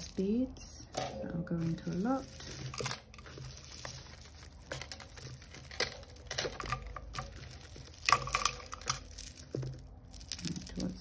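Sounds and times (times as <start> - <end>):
necklaces clicking and rattling: 0.0 - 11.0.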